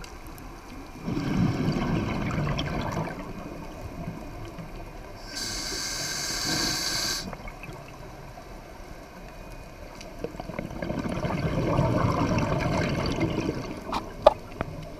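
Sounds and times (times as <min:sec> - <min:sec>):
bubbling rumbling exhale: 0:01.0 - 0:03.3, 0:10.5 - 0:14.4
regulator hissing inhale: 0:05.2 - 0:07.4.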